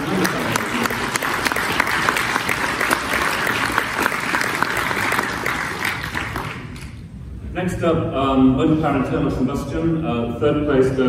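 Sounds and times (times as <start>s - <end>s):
audience clapping: 0.0s - 7.0s.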